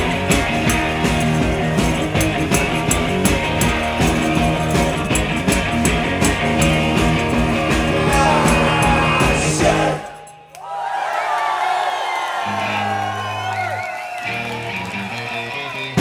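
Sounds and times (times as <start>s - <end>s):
steady drumbeat: 0.0s - 10.1s
electric guitars: 0.0s - 10.4s, 12.4s - 16.0s.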